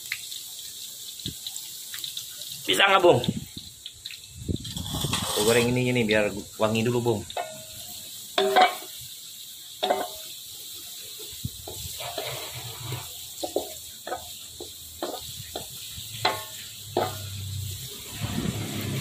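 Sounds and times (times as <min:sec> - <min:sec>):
frying in hot oil sizzling: 0:00.0 - 0:19.0
wooden spatula scraping pan: 0:04.7 - 0:05.8, 0:11.8 - 0:14.2.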